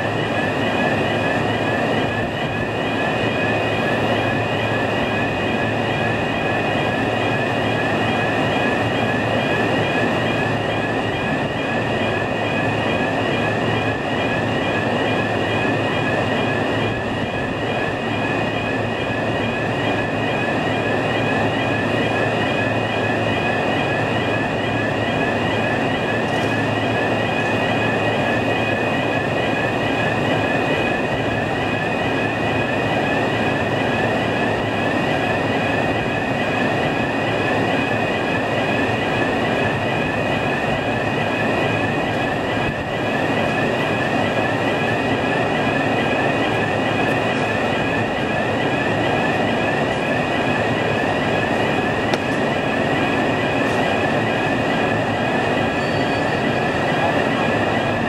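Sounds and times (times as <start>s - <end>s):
overhead crane running: 0.0s - 58.0s.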